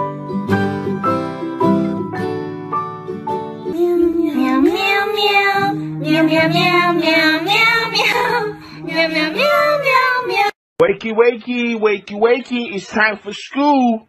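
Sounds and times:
musical accompaniment: 0:00.0 - 0:10.5.

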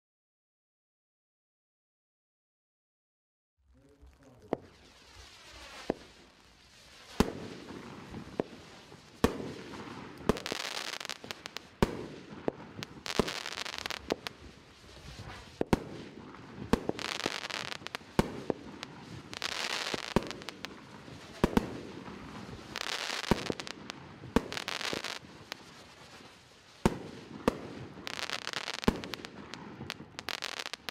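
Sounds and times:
firework hissing: 0:04.2 - 0:30.9
firework cake sharp shots: 0:09.2 - 0:25.8, 0:26.8 - 0:30.9.

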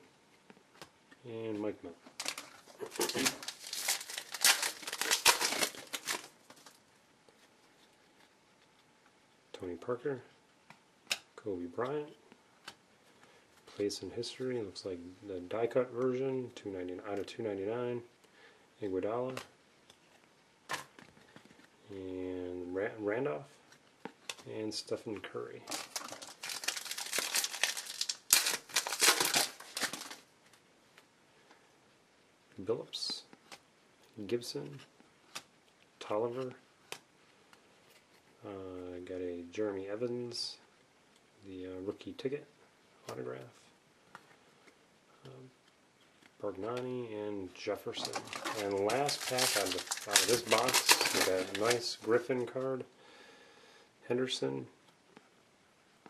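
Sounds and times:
wrapper tearing and crinkling: 0:02.2 - 0:06.8, 0:25.6 - 0:30.2, 0:47.9 - 0:52.1.

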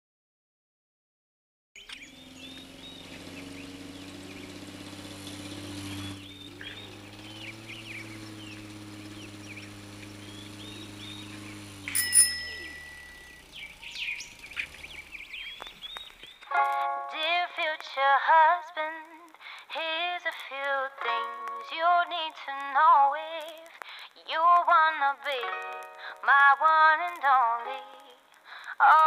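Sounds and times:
birds chirping: 0:01.8 - 0:16.8
bright bell-like ding: 0:11.9 - 0:13.4.

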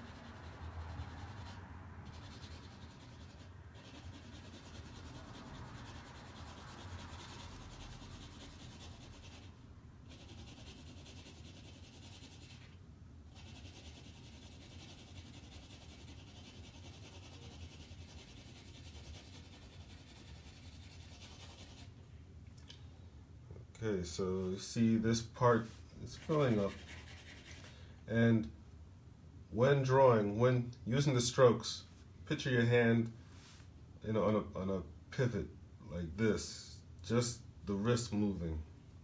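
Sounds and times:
pencil scratching on paper: 0:00.0 - 0:09.5, 0:10.1 - 0:12.7, 0:13.3 - 0:21.9, 0:26.1 - 0:27.7.

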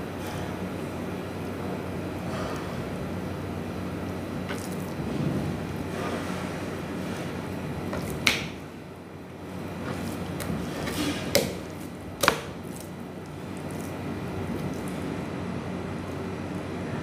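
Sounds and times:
background hum: 0:00.0 - 0:17.0
meat slapping on cutting board: 0:07.9 - 0:08.7, 0:09.8 - 0:13.0.

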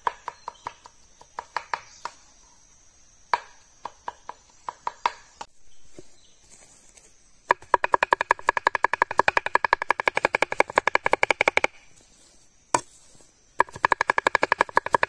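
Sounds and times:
knife chopping on wooden board: 0:13.6 - 0:15.0.

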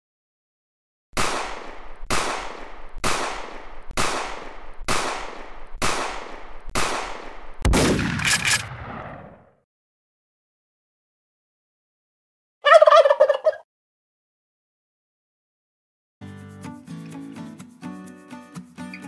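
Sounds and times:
gunshots: 0:01.2 - 0:09.6
heavy blast with sharp cracks: 0:01.2 - 0:09.6.

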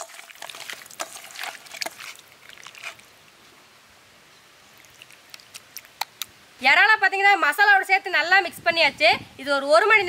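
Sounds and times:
wet squelching of prawns: 0:00.0 - 0:03.1, 0:04.8 - 0:06.3.

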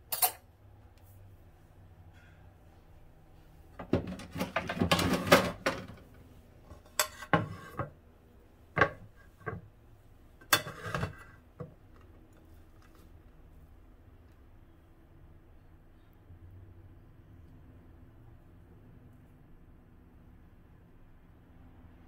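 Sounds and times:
plate and spoon clattering on board: 0:10.4 - 0:11.3.

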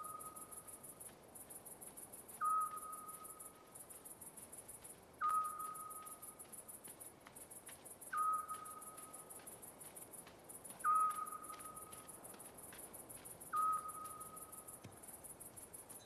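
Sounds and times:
insects chirping: 0:00.0 - 0:16.0.

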